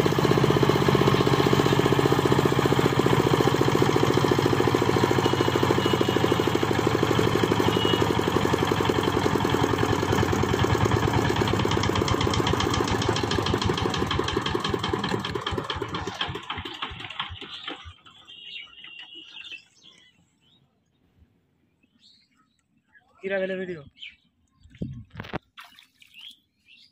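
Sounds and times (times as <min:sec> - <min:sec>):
diesel engine running: 0:00.0 - 0:18.4.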